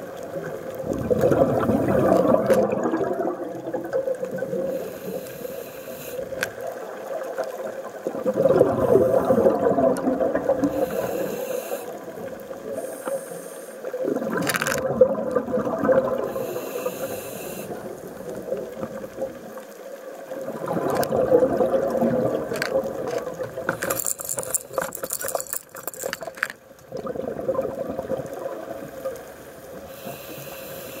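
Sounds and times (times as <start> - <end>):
exhaled bubbles gurgling underwater: 0.0 - 23.8, 26.7 - 31.0
hiss of regulator inhalation: 4.7 - 6.4, 10.7 - 12.0, 12.8 - 13.9, 16.3 - 17.8, 29.9 - 31.0.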